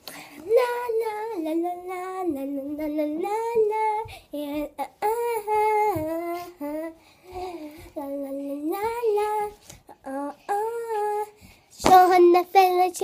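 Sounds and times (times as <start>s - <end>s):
girl singing wordless tune: 0.0s - 13.0s.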